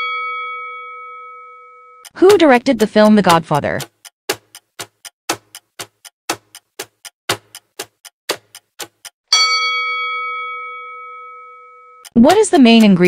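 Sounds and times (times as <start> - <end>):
clock ticking: 2.0 - 9.2, 12.0 - 13.0
chime ringing: 9.3 - 12.0.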